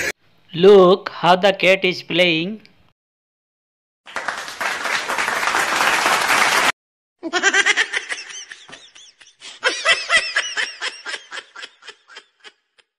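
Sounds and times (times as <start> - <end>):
person laughing: 7.2 - 12.9.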